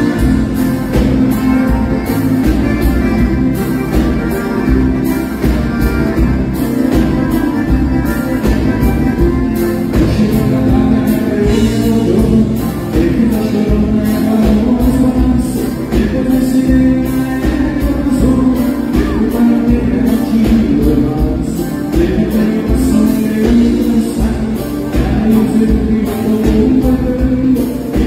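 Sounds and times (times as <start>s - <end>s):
accordion: 0.0s - 28.0s
bass guitar: 0.0s - 28.0s
drum beat: 0.0s - 28.0s
electric guitar: 0.0s - 28.0s
person singing: 6.1s - 28.0s.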